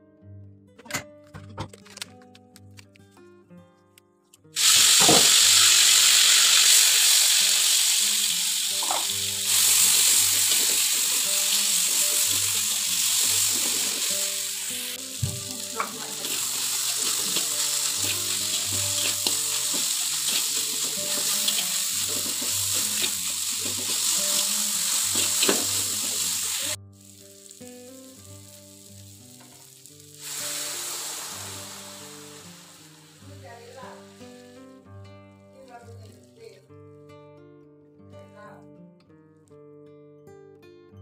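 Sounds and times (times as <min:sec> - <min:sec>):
paste sizzling in a wok: 0:04.6 - 0:34.9
soft background music: 0:05.7 - 0:39.6.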